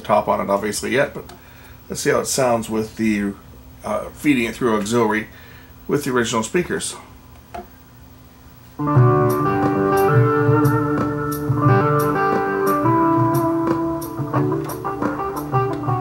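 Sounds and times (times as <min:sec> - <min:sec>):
music with a steady beat: 0:08.8 - 0:16.0.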